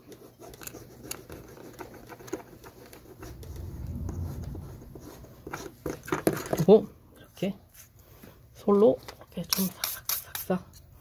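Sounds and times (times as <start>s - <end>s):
low rumble: 3.0s - 5.8s.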